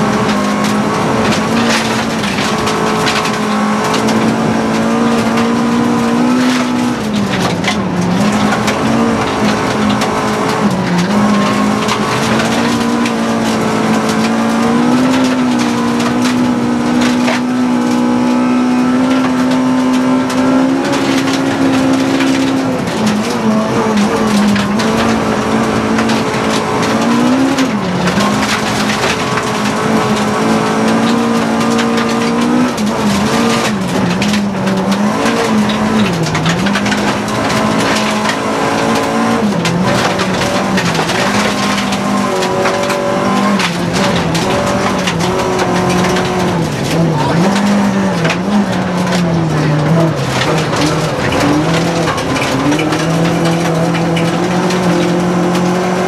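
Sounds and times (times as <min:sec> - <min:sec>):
gravel and tyre noise: 0:00.0 - 0:56.0
rally car engine revving: 0:00.0 - 0:56.0.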